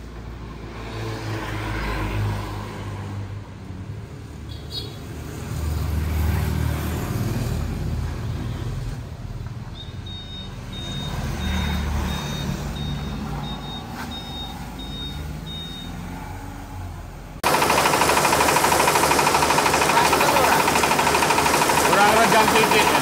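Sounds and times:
reversing alarm beeping: 0:09.7 - 0:16.1
pickup truck engine running: 0:17.4 - 0:23.0.

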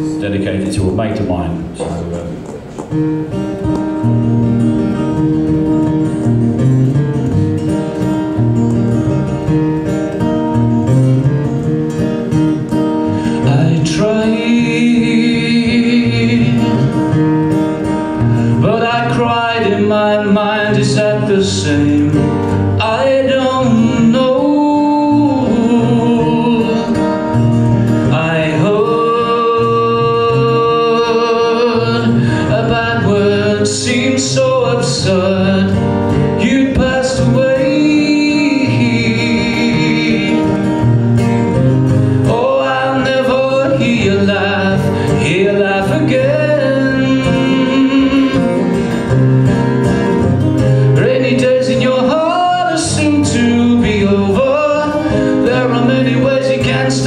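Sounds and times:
acoustic guitar playing: 0:00.0 - 0:57.0
man singing: 0:13.3 - 0:17.2, 0:18.5 - 0:41.0, 0:42.1 - 0:48.8, 0:50.8 - 0:57.0.

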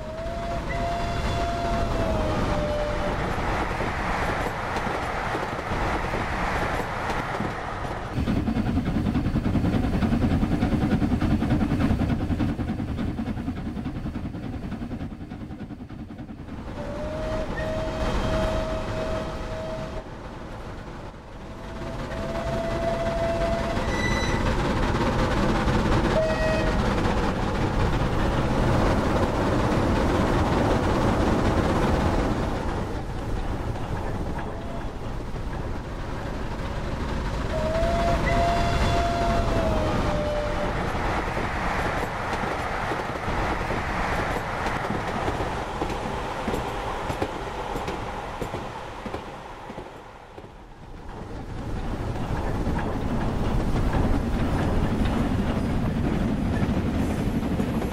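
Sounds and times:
steam whistle: 0:00.0 - 0:03.2, 0:16.8 - 0:20.0, 0:22.1 - 0:24.4, 0:26.2 - 0:26.8, 0:37.5 - 0:40.8
train wheels rumbling on track: 0:00.0 - 0:57.9.

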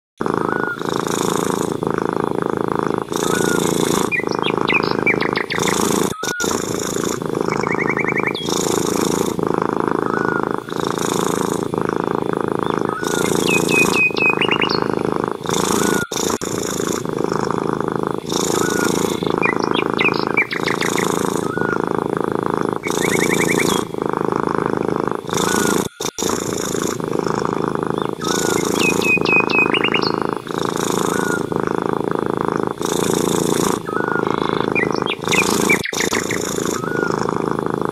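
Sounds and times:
cat purring: 0:00.2 - 0:37.9
bird chirps and trills: 0:00.4 - 0:01.7, 0:02.9 - 0:09.3, 0:10.0 - 0:11.4, 0:12.2 - 0:17.0, 0:18.2 - 0:21.9, 0:22.8 - 0:24.0, 0:25.3 - 0:26.8, 0:27.5 - 0:31.6, 0:32.8 - 0:37.3.

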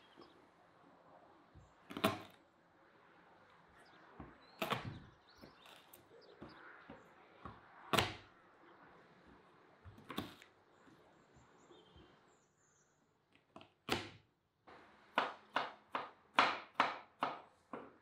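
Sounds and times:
knife crushing garlic thuds: 0:01.9 - 0:02.4, 0:04.2 - 0:06.6, 0:13.5 - 0:14.3.

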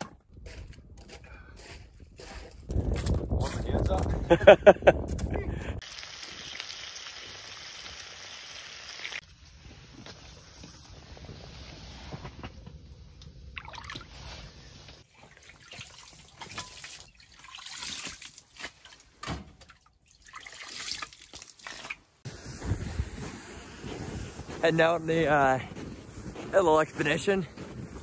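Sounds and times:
meltwater sloshing and trickling: 0:13.4 - 0:22.2.

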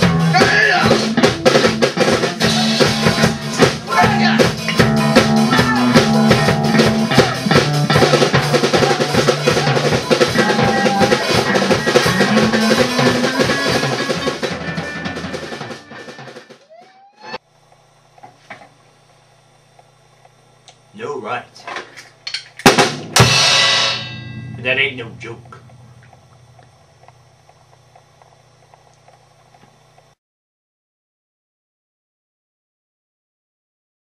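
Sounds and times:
drum kit with cymbal crashes: 0:00.0 - 0:16.7, 0:22.6 - 0:26.5
sustained guitar notes: 0:00.0 - 0:17.4, 0:23.2 - 0:26.9.

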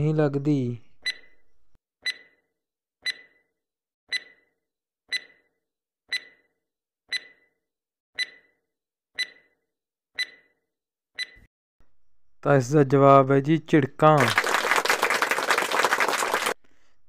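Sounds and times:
sharp ringing timer ticks: 0:02.0 - 0:02.4, 0:03.0 - 0:03.4, 0:04.1 - 0:04.5, 0:05.1 - 0:05.5, 0:06.1 - 0:06.5, 0:07.1 - 0:07.5, 0:08.2 - 0:08.6, 0:09.2 - 0:09.6, 0:10.2 - 0:10.5, 0:11.2 - 0:11.5.

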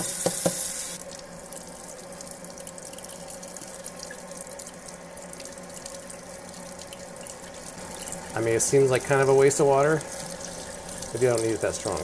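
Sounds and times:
faucet running into steel sink: 0:00.0 - 0:01.0, 0:06.6 - 0:12.0.

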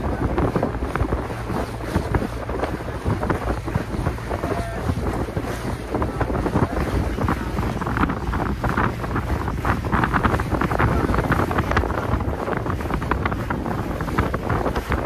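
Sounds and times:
sea water splashing against hull: 0:00.0 - 0:15.0
wind buffeting microphone: 0:00.0 - 0:15.0.

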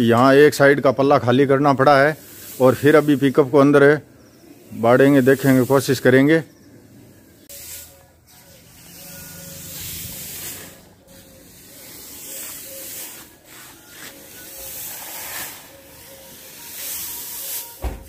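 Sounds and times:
straw rustling with pitchfork: 0:07.5 - 0:15.7.

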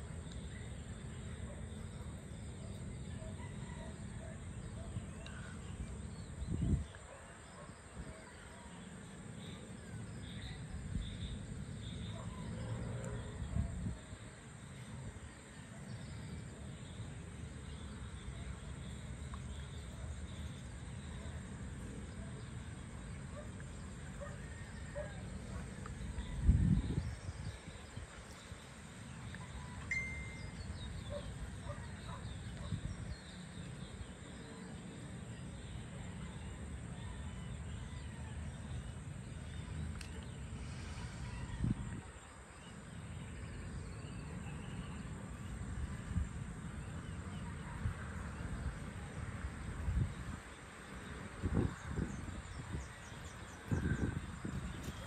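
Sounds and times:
insect calls: 0:00.0 - 0:55.0
wind rumble on microphone: 0:04.5 - 0:08.7, 0:12.9 - 0:15.4, 0:23.8 - 0:29.6, 0:30.5 - 0:34.2, 0:39.3 - 0:42.5, 0:45.6 - 0:55.0.

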